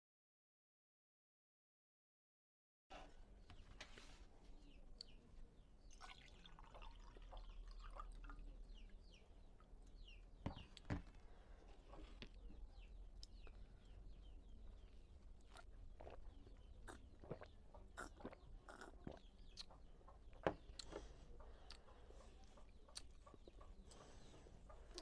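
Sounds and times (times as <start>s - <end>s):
water pouring into a glass: 6.0s - 8.5s.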